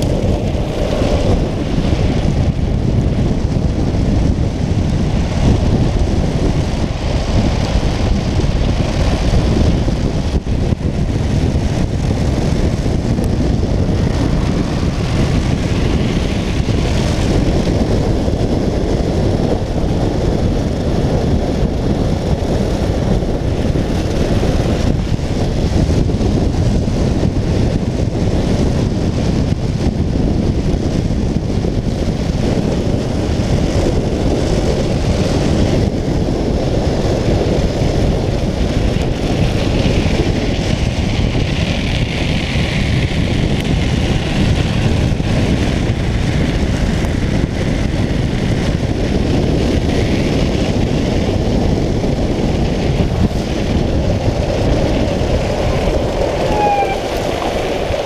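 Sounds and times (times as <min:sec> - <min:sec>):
wheels rumbling on road: 0:00.0 - 0:58.0
wind noise on microphone: 0:00.0 - 0:58.0.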